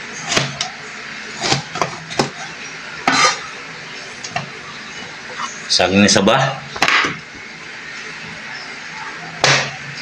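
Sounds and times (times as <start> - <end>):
knife scraping across board: 3.0 - 3.4.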